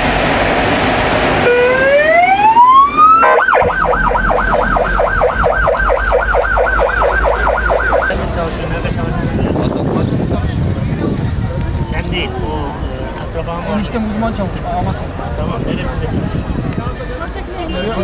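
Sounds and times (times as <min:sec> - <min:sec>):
ambulance siren: 0:01.4 - 0:08.4.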